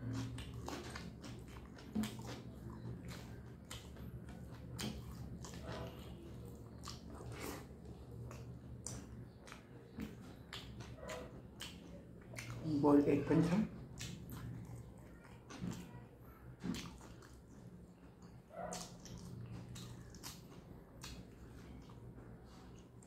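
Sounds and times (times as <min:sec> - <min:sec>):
wet lip-smacks and mouth clicks: 0:00.0 - 0:06.0, 0:06.6 - 0:12.6, 0:13.9 - 0:15.9, 0:16.6 - 0:17.6, 0:18.7 - 0:22.0
chewing food: 0:00.0 - 0:23.0
low steady hum: 0:00.0 - 0:23.0.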